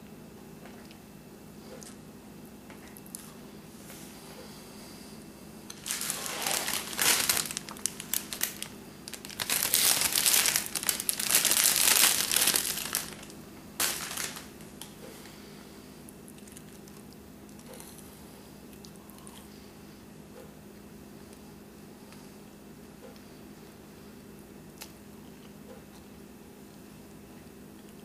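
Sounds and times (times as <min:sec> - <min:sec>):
plastic bag crinkling: 0:05.7 - 0:14.9.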